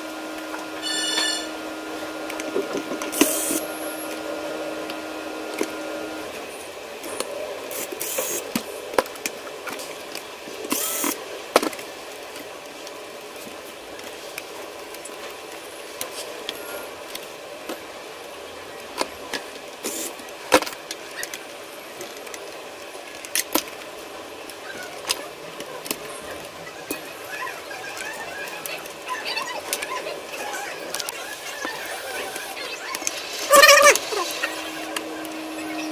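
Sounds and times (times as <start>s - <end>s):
room noise: 18.8s - 35.9s.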